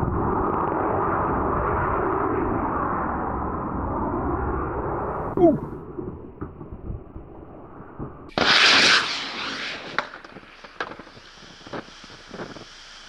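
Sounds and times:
rocket motors hissing: 8.3s - 13.0s
smouldering crackles and ticks: 9.9s - 13.0s.

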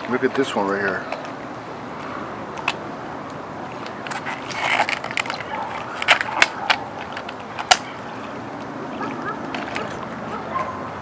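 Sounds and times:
case rustling: 3.6s - 7.8s.

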